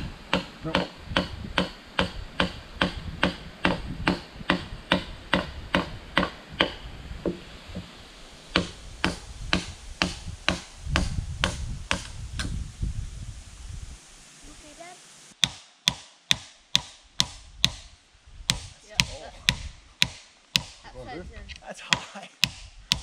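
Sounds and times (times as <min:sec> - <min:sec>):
hand tool blows on wood: 0:08.5 - 0:12.6.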